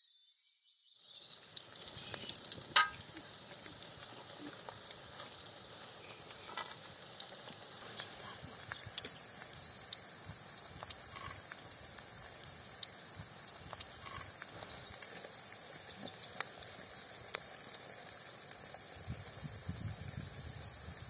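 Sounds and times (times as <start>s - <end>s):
patties sizzling in oil: 0.7s - 21.0s
oil popping and clicking: 1.2s - 20.3s.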